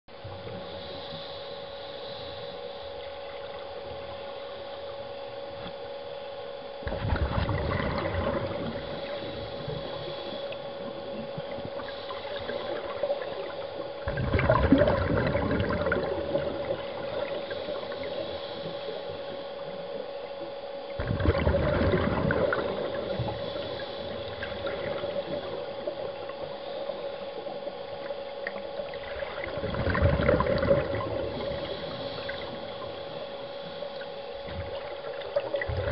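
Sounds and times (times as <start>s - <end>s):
faint constant tone: 0.1s - 35.9s
steady hum: 0.1s - 35.9s
underwater exhaled bubbles gurgling: 0.1s - 35.9s.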